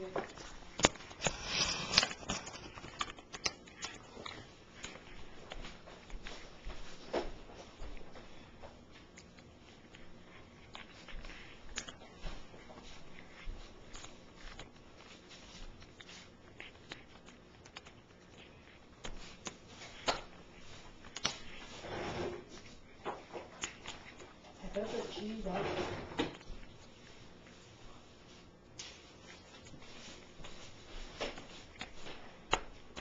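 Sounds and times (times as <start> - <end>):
cat crunching bones: 0.2 - 7.0, 8.2 - 24.8.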